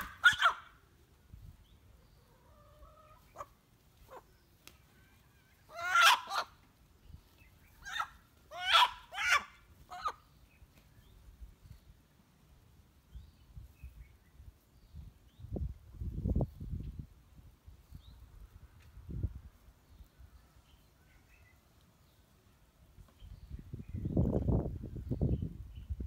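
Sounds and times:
chicken squawking: 0.0 - 0.8, 2.3 - 4.3, 5.6 - 6.6, 7.7 - 10.2
chicken clucking: 2.2 - 4.2.

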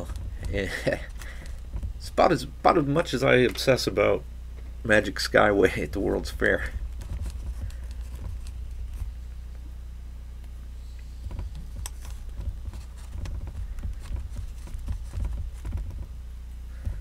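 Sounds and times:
hands tapping and rubbing: 0.0 - 2.2, 6.9 - 9.2, 11.2 - 16.2
steady low hum: 0.0 - 17.0.

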